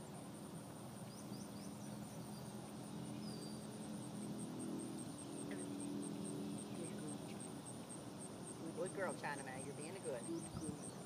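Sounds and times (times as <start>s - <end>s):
insect chirping: 0.0s - 11.0s
low steady hum: 0.0s - 11.0s
bird chirps: 10.1s - 11.0s.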